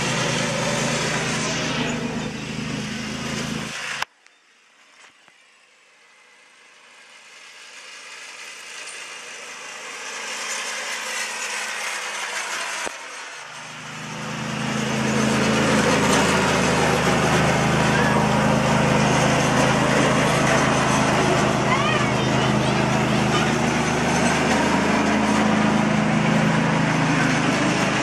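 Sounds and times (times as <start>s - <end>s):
riding mower engine running: 0.0s - 4.1s, 4.8s - 28.0s.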